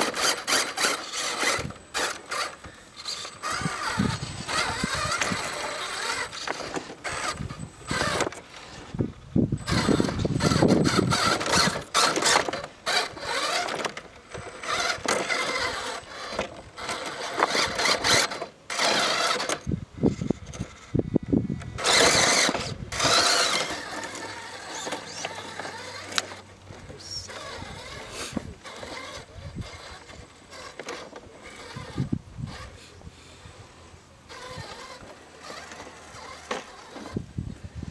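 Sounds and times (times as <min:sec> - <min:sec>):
toy car electric motors whining: 0:00.0 - 0:37.9.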